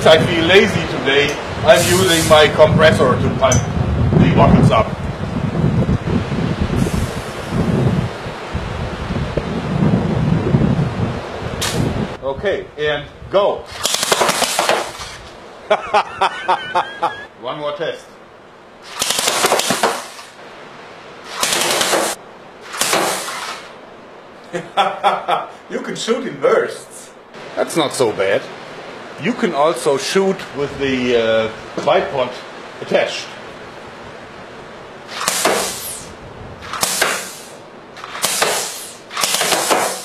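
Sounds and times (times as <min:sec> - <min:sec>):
valves hissing open: 0:01.3 - 0:02.5, 0:22.0 - 0:23.7, 0:35.1 - 0:40.0
air gun firing bursts: 0:11.6 - 0:11.8, 0:13.7 - 0:15.2, 0:18.8 - 0:20.4, 0:21.3 - 0:23.7, 0:35.1 - 0:40.0.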